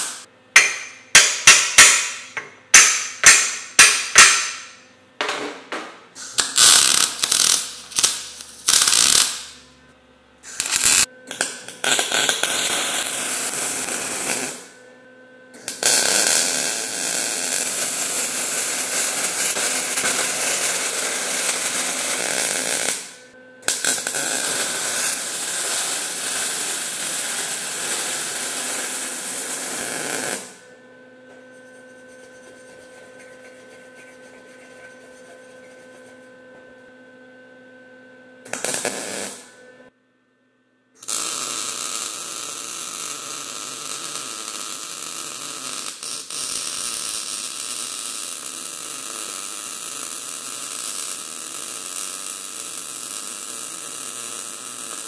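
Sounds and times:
welder arc crackling: 0.0 - 2.2, 6.2 - 9.6, 10.4 - 14.8, 15.6 - 30.6, 38.4 - 39.5, 41.0 - 55.0
sharp metal strikes: 0.6 - 4.8.

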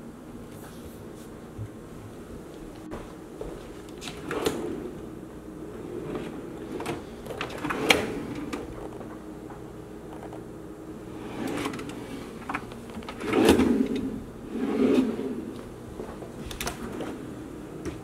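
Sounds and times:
wooden drawers sliding: 5.7 - 9.1, 11.1 - 18.0.

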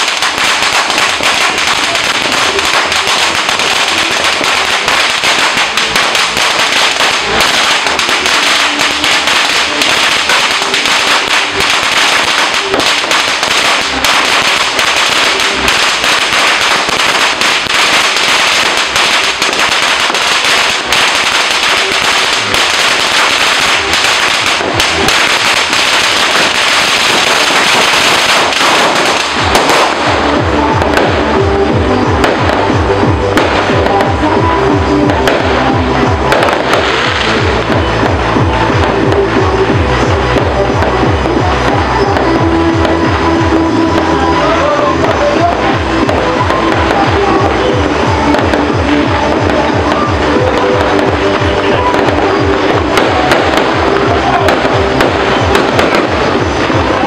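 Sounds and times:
firecrackers popping: 0.0 - 57.0.

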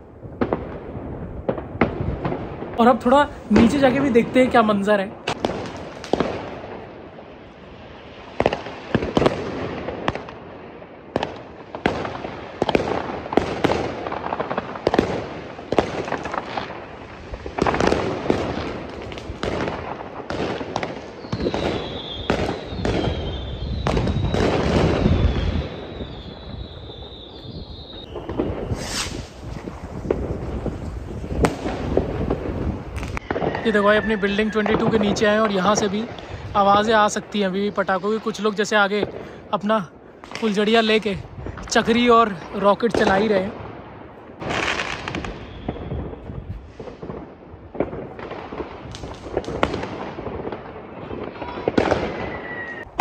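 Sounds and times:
fireworks and firecrackers banging: 0.0 - 53.0
wavering high whistle: 25.2 - 29.3, 52.2 - 52.9.

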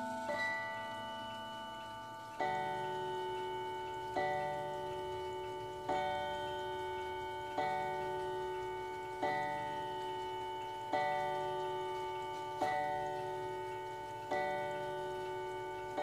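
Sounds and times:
mantel clock chime strikes: 0.0 - 16.0.

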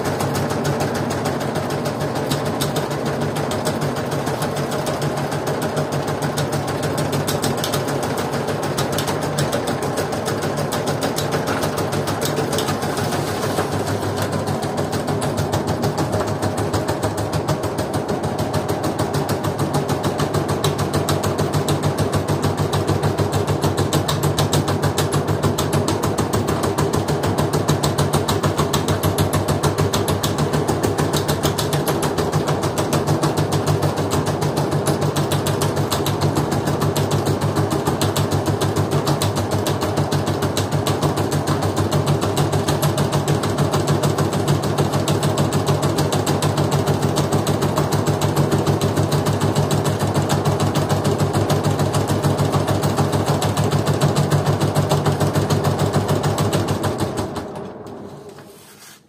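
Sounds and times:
washing machine spinning: 0.0 - 58.9
drum winding down: 10.6 - 17.5.

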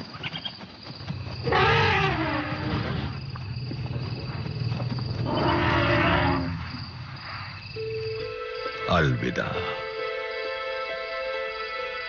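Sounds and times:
elephants trumpeting: 1.5 - 2.9.

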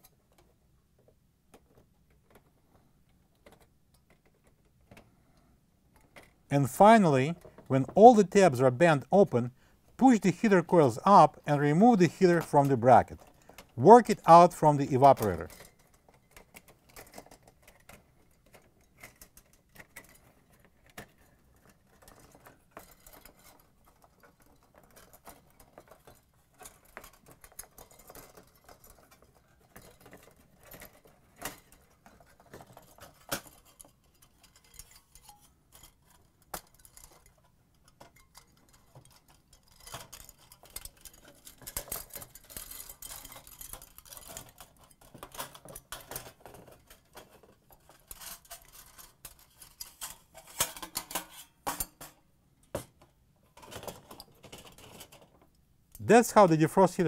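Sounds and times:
light metallic clicks and scrapes: 15.2 - 56.0.

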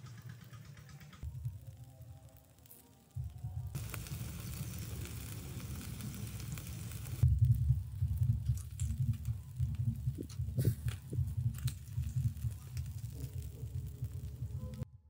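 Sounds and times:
chicken wings sizzling on grill: 1.2 - 14.8
low rumble: 3.2 - 15.0.

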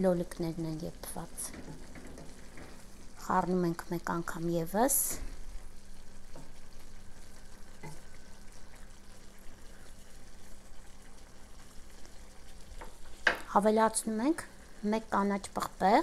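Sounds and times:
vegetables crackling in pot: 0.0 - 16.0
wooden spatula stirring: 1.3 - 3.1, 5.2 - 10.8.

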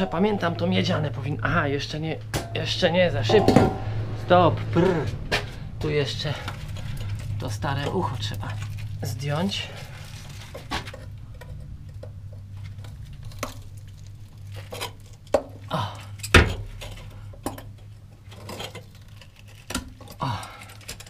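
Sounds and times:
steady low hum: 0.0 - 21.0
hand tools clanking on metal: 2.3 - 4.0.

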